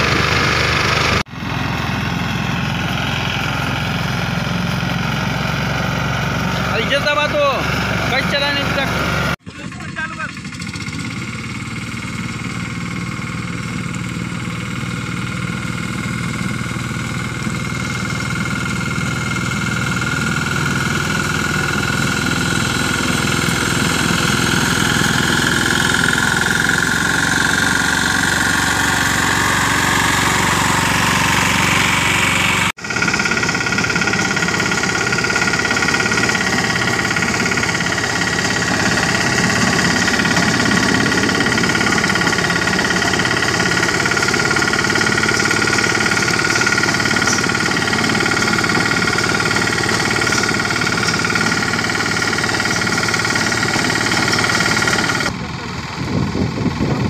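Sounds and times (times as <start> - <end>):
mini tractor engine under load: 0.0 - 57.0.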